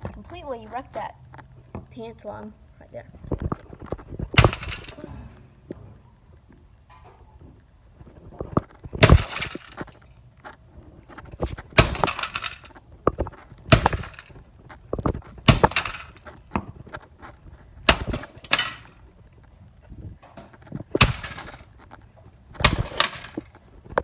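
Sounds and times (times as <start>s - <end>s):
rattle of breaking parts: 3.4s - 5.1s, 8.3s - 10.2s, 11.1s - 19.0s, 20.4s - 24.0s.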